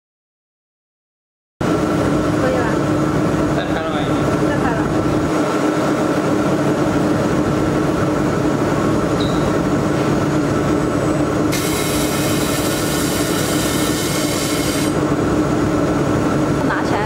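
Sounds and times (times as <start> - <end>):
steady machine drone: 1.6 - 17.0
loud welding hiss: 11.5 - 15.0.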